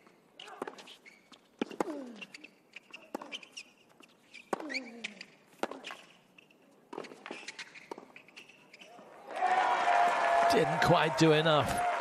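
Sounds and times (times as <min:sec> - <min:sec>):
tennis ball bouncing: 0:01.6 - 0:02.3, 0:04.3 - 0:06.1, 0:06.9 - 0:08.3.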